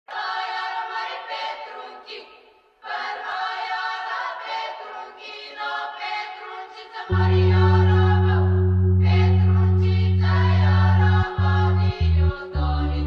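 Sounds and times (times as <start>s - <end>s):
music with sustained chords: 7.1s - 13.0s.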